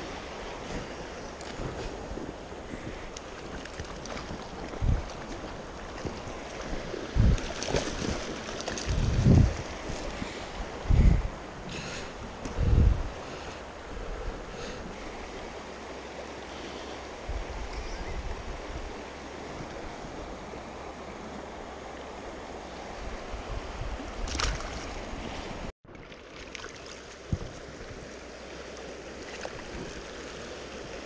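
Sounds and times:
wind buffeting microphone: 0.0s - 15.7s
river running over rocks: 0.0s - 31.0s.

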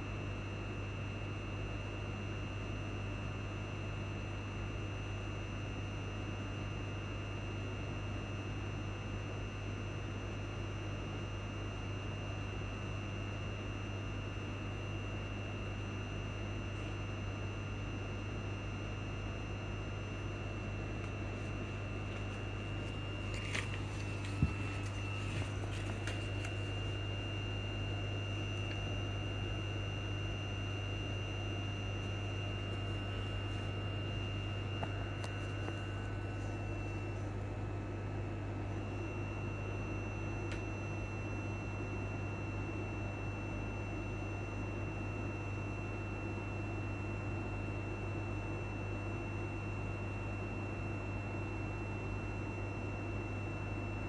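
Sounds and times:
train cabin low hum: 16.5s - 54.0s
thin high whine: 20.4s - 37.5s.

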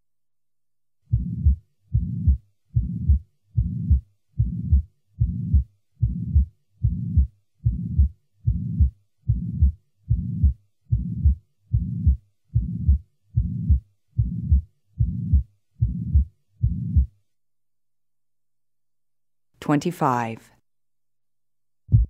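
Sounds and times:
heartbeat with murmur: 1.1s - 17.1s.

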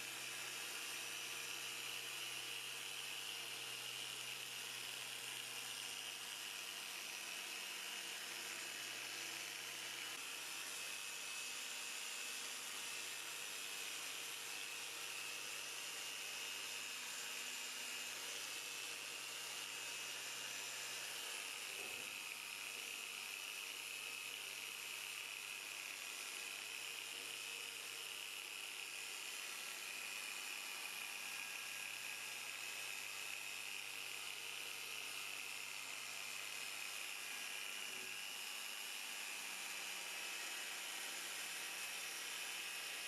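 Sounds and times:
polisher motor whining: 24.8s - 39.9s.

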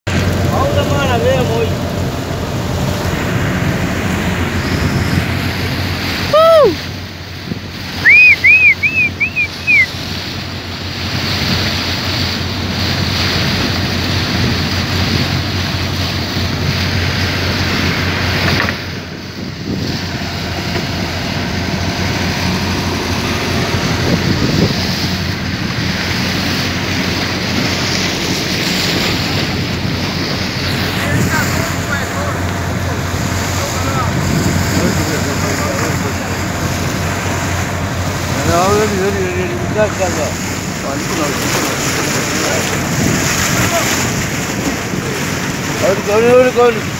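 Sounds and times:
low boat engine hum: 0.1s - 46.9s
water rushing: 0.1s - 46.9s
wind against microphone: 0.1s - 46.9s
high whistled chirps: 8.0s - 9.9s.

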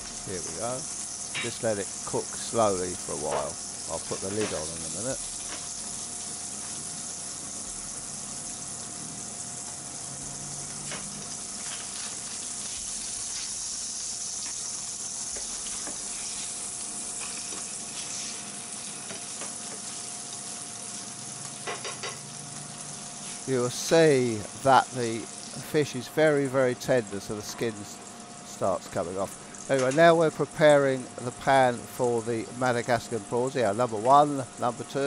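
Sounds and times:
fish sizzling in a frying pan: 0.0s - 35.0s.

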